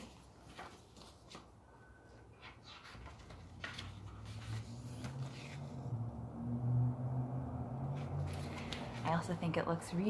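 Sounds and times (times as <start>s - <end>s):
book pages rustling: 0.0s - 6.1s, 7.9s - 9.4s.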